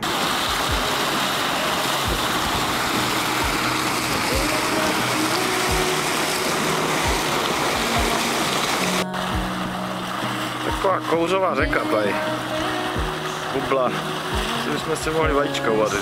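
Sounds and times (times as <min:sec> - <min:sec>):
hot spring water and steam hissing: 0:00.0 - 0:16.0
low thumps: 0:02.0 - 0:05.0.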